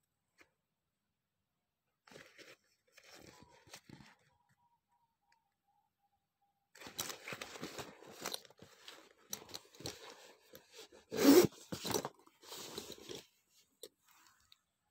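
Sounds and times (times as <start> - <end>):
metal zipper scraping: 6.8 - 13.4.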